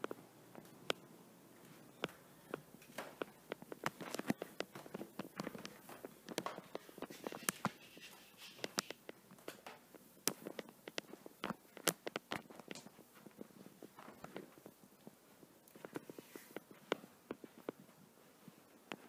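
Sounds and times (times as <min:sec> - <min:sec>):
footsteps on carpet: 0:01.6 - 0:09.5
sharp clicks and taps: 0:08.5 - 0:13.0.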